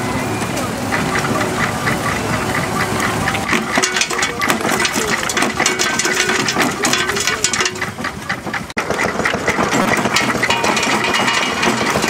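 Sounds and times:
threshing machine clatter: 0:00.0 - 0:12.0
stone crusher crunching stone: 0:03.4 - 0:12.0.

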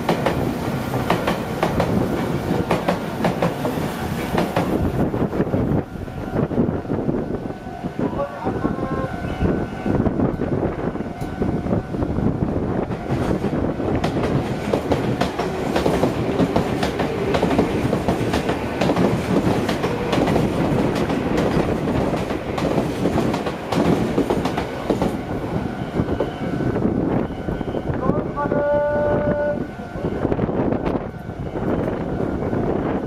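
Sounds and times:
train wheels clattering on rails: 0:00.0 - 0:05.8, 0:12.8 - 0:27.3.

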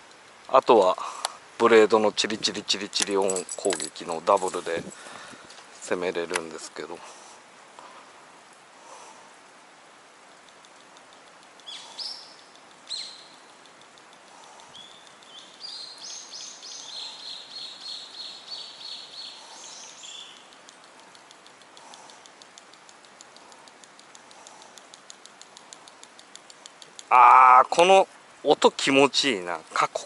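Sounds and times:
songbird singing: 0:10.2 - 0:30.0
fishing lure clicking: 0:13.6 - 0:15.3, 0:20.3 - 0:27.1.

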